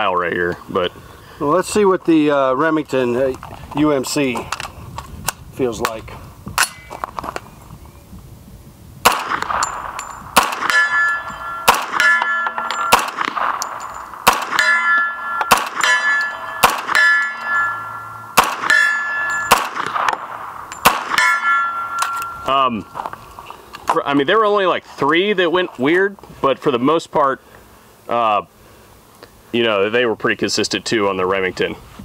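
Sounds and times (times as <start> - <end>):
bullets clanging on steel plate: 6.6 - 7.0, 9.4 - 23.0
rifle gunshots: 9.0 - 11.0, 11.6 - 17.6, 18.3 - 22.2.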